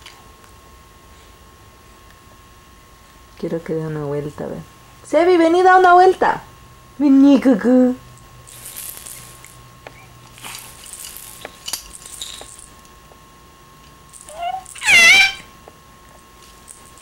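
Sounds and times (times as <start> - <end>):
baby squealing: 14.3 - 15.5.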